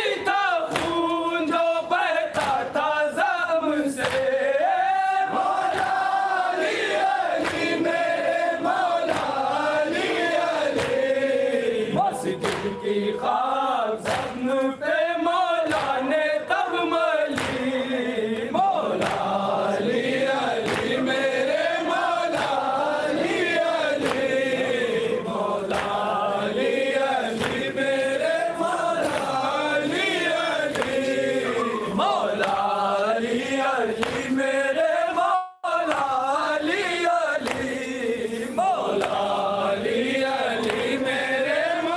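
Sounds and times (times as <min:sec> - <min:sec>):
men chanting a lament: 0:00.0 - 0:41.9
sharp slaps: 0:00.6 - 0:01.2, 0:02.3 - 0:02.9, 0:04.0 - 0:04.4, 0:05.4 - 0:07.9, 0:09.1 - 0:10.1, 0:10.7 - 0:11.2, 0:12.3 - 0:12.8, 0:14.0 - 0:14.7, 0:15.6 - 0:16.2, 0:17.3 - 0:17.8, 0:18.4 - 0:19.5, 0:20.6 - 0:21.1, 0:22.3 - 0:23.4, 0:24.0 - 0:24.5, 0:25.7 - 0:28.0, 0:30.7 - 0:33.1, 0:34.0 - 0:34.4, 0:35.9 - 0:36.2, 0:37.4 - 0:39.4.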